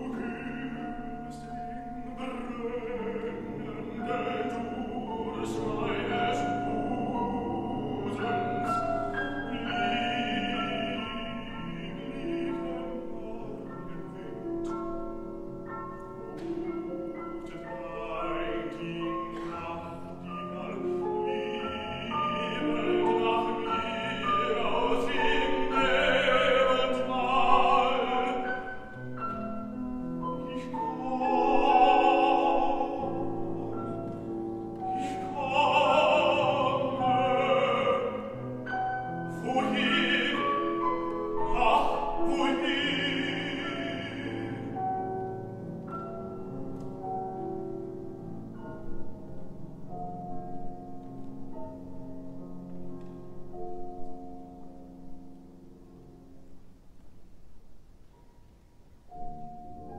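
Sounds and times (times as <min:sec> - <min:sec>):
baritone singing with vibrato: 0:00.0 - 0:15.3, 0:16.3 - 0:45.4
grand piano: 0:00.0 - 0:59.9.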